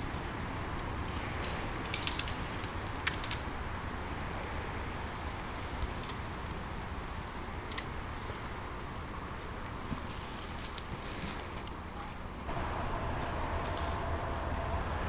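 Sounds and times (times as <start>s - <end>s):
low background rumble: 12.4s - 15.0s.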